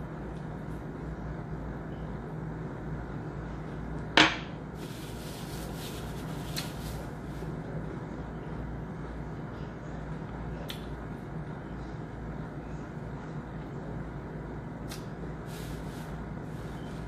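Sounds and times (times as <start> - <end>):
low room hum: 0.0 - 17.0
paper rustling: 4.8 - 7.2
paper napkin swish: 4.8 - 7.3.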